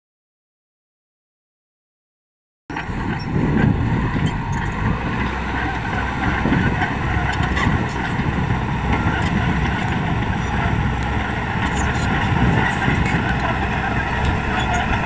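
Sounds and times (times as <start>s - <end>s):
bulldozer diesel engine under load: 2.7s - 15.0s.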